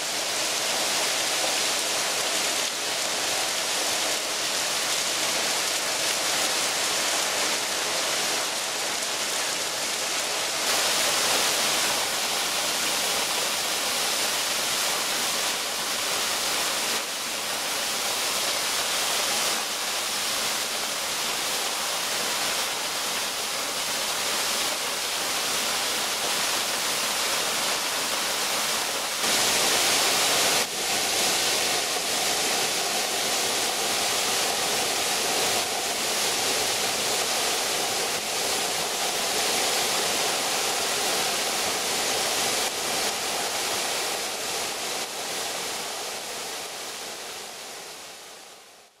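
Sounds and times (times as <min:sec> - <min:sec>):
waterfall rushing onto rock: 0:00.0 - 0:48.3.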